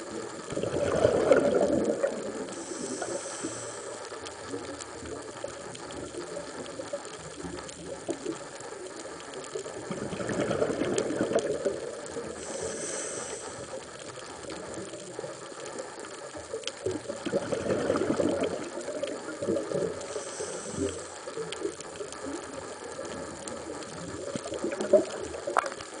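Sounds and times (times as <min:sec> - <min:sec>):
gurgling exhaled bubbles: 0:00.0 - 0:03.7, 0:04.3 - 0:15.4, 0:16.5 - 0:26.0
fine clicks underwater: 0:00.0 - 0:26.0
regulator inhalation hiss: 0:02.0 - 0:09.6, 0:11.8 - 0:16.5, 0:18.5 - 0:24.3.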